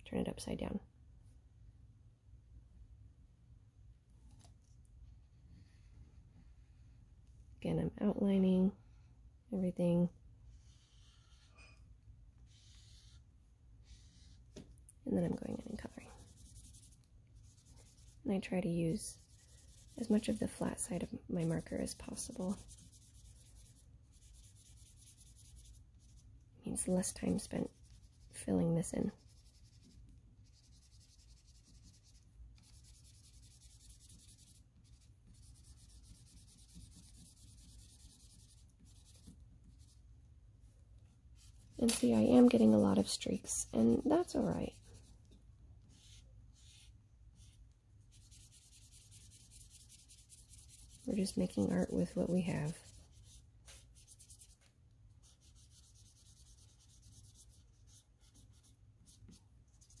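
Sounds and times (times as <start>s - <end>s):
marker scratching on paper: 10.5s - 11.7s, 12.4s - 14.4s, 15.2s - 40.0s, 41.4s - 45.1s, 45.8s - 60.0s.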